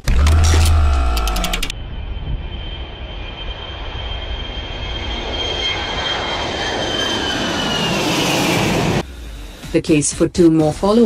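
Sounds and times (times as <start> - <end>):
jet flying past: 1.7 - 9.8.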